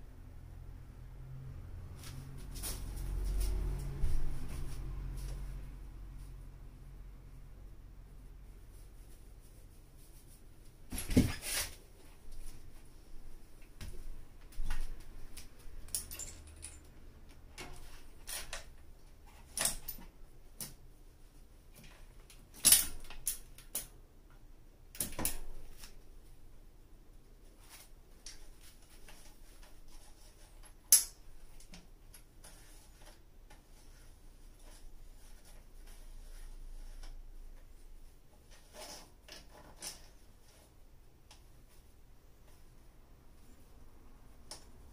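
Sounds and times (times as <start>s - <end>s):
bike wheel and chain clattering: 15.8s - 16.9s.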